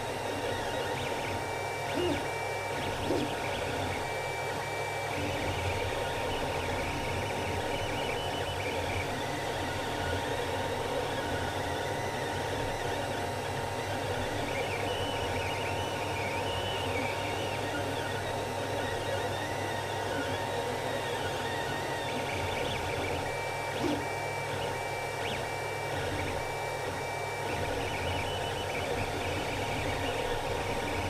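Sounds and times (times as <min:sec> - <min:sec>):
cooling fans whirring: 0:00.0 - 0:31.0.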